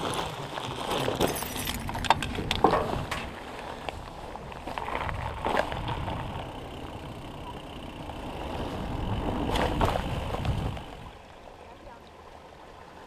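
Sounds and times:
bike tyres rumbling: 0:00.0 - 0:11.3
bike knocks and rattles: 0:00.7 - 0:03.8, 0:04.6 - 0:11.0.

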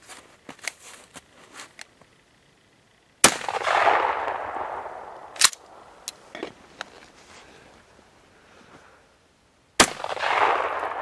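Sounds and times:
shotgun blast with echo: 0:03.2 - 0:05.2, 0:09.8 - 0:11.0.

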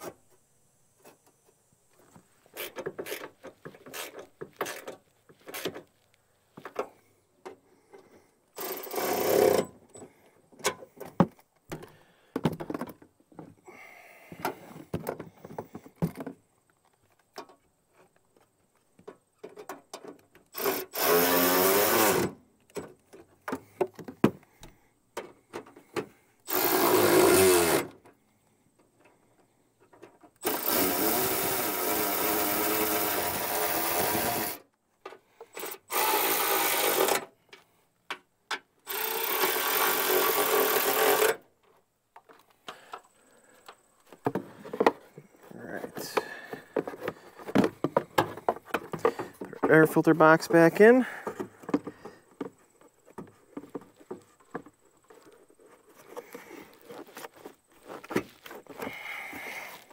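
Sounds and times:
handling clicks and knocks: 0:09.6 - 0:13.6, 0:41.6 - 0:59.9
cordless driver motor whirring: 0:20.6 - 0:22.2, 0:26.5 - 0:27.9, 0:30.4 - 0:34.6, 0:35.6 - 0:37.2.

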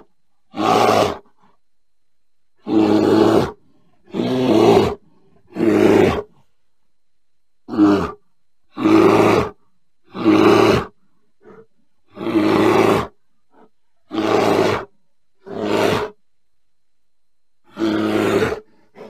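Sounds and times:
bear grunting: 0:00.0 - 0:01.5, 0:02.6 - 0:06.5, 0:07.7 - 0:16.2, 0:17.6 - 0:19.0
bear growling: 0:00.0 - 0:01.6, 0:02.6 - 0:06.5, 0:07.7 - 0:16.2, 0:17.6 - 0:19.0.

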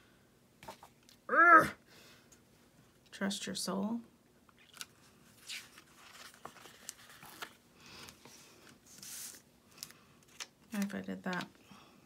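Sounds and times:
paper sticker sheets rustling: 0:04.7 - 0:11.5.

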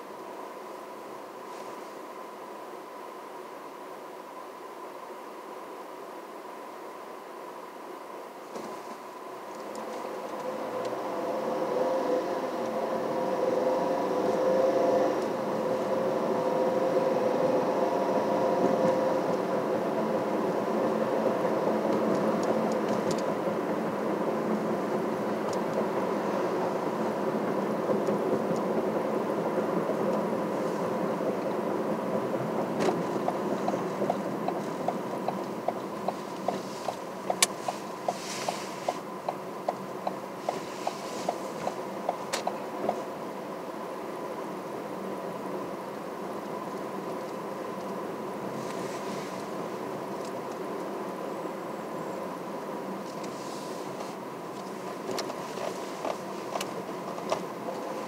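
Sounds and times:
car road and engine noise: 0:00.0 - 0:58.0
turn signal clicking: 0:32.8 - 0:43.0.

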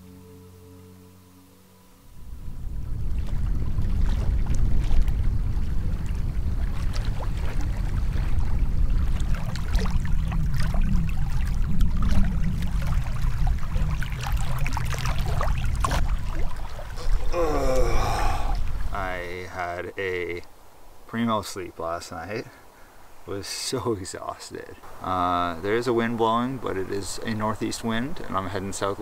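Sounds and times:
wind on microphone: 0:02.1 - 0:19.1.

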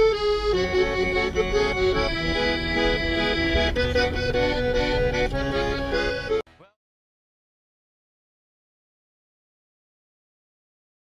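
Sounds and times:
accordion music: 0:00.0 - 0:06.8.

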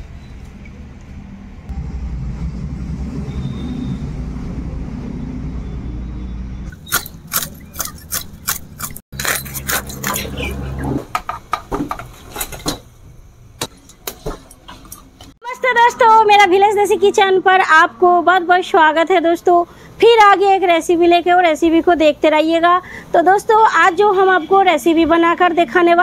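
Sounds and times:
low rumble: 0:01.6 - 0:06.7
blade scraping fish scales: 0:06.7 - 0:11.0.

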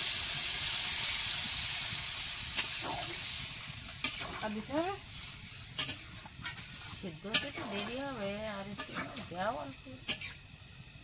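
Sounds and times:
curry sizzling in pan: 0:00.0 - 0:10.6
utensils clicking against pan: 0:05.7 - 0:09.3.

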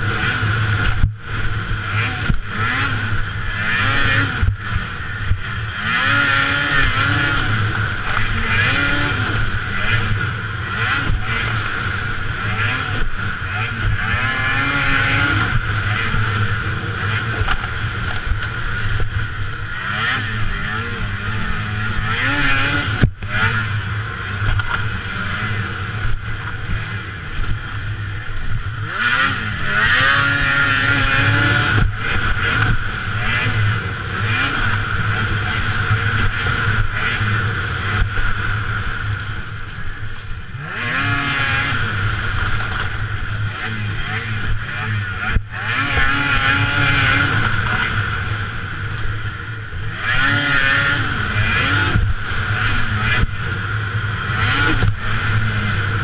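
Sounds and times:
snowmobile engine revving: 0:00.0 - 0:56.0
steady high whine: 0:00.0 - 0:56.0.

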